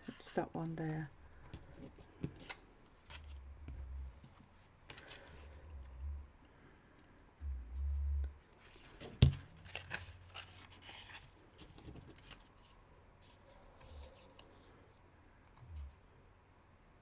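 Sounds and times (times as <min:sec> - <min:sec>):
card rustling in hands: 0:08.6 - 0:14.6.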